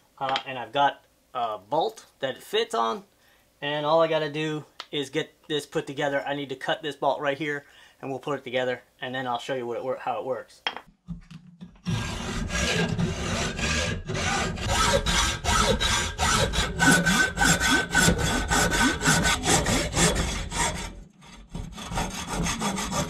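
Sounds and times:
hacksaw cutting through bolt: 11.8s - 23.0s.

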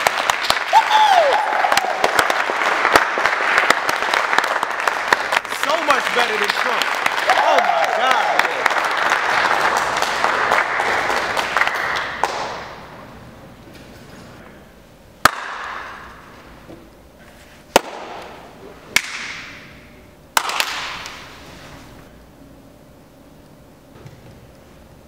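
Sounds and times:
lone hand claps echoing: 0.0s - 12.9s, 15.2s - 16.2s, 19.0s - 19.6s, 20.4s - 21.2s
group applause: 0.0s - 13.0s.

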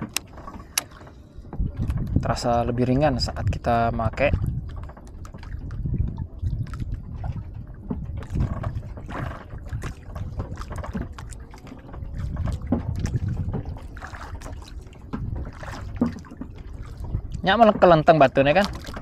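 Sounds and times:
water lapping against boat hull: 0.0s - 19.0s
wind rumbling on microphone: 0.0s - 19.0s.

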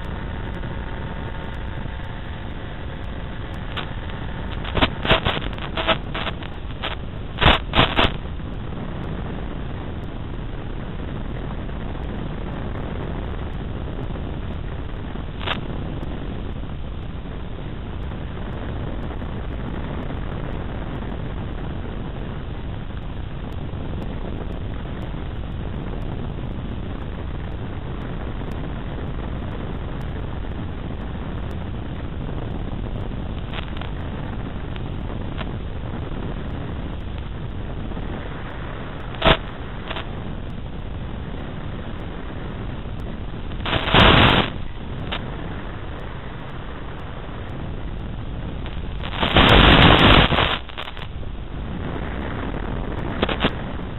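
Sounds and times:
brief crackle: 0.0s - 9.2s, 15.3s - 16.1s, 31.0s - 51.2s, 51.8s - 53.9s
rush of airflow on microphone: 0.0s - 53.9s
faint clicks: 31.4s - 35.6s.

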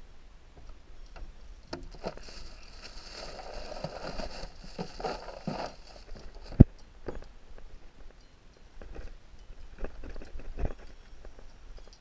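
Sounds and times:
plastic bag rustling: 1.9s - 6.6s.

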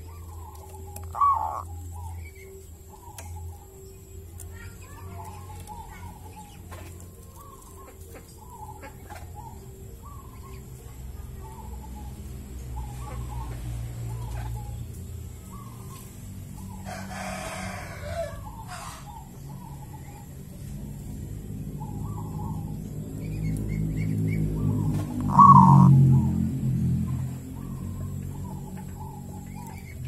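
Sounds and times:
steady low hum: 0.0s - 17.1s, 17.7s - 30.0s
dove calling: 0.0s - 30.0s
harsh bird call: 1.1s - 1.8s, 25.2s - 26.2s.

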